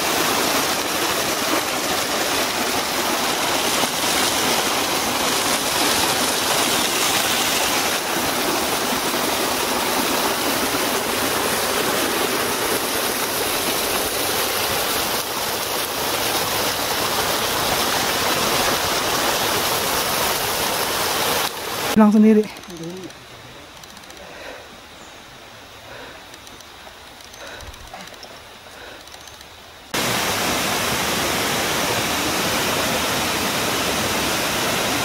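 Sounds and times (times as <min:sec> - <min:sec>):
water rushing over rocks: 0:00.0 - 0:22.0, 0:29.9 - 0:35.0.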